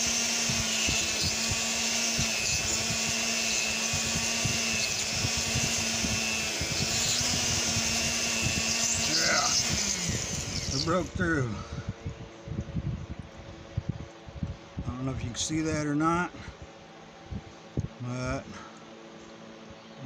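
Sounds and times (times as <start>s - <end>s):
bit grating on stone: 0.0s - 11.1s
rotary tool whining: 0.0s - 12.1s.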